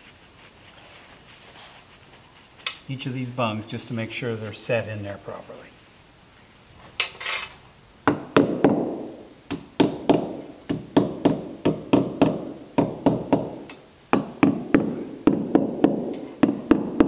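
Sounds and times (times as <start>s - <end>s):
hammer tapping wood: 9.5s - 17.0s.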